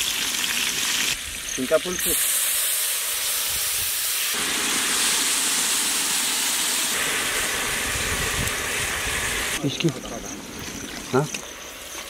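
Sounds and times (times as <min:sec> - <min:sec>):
fish sizzling in hot oil: 0:00.0 - 0:09.6.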